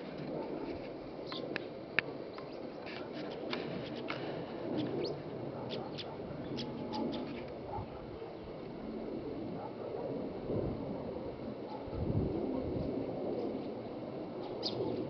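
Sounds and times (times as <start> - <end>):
small birds chirping: 1.2 - 8.6, 13.6 - 15.0.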